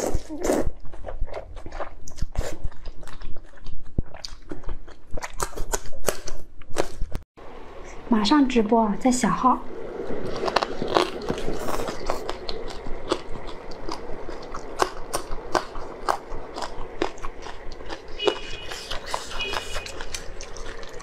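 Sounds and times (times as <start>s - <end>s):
mouth eating sounds: 0.0s - 7.1s, 10.4s - 21.0s.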